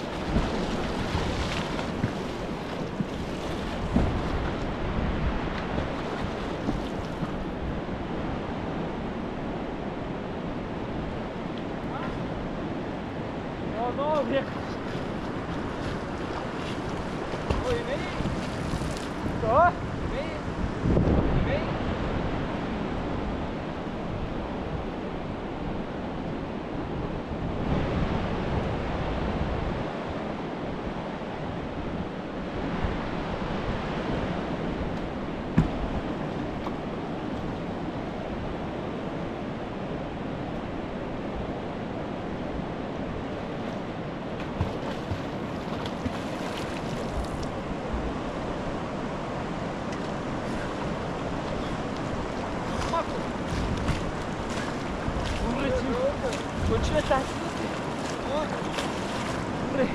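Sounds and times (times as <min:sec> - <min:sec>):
river water rushing: 0:00.0 - 0:59.9.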